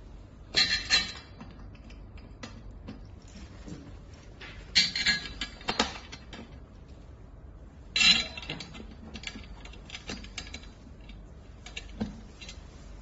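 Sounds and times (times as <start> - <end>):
metal parts clicking and knocking: 8.0 - 12.6.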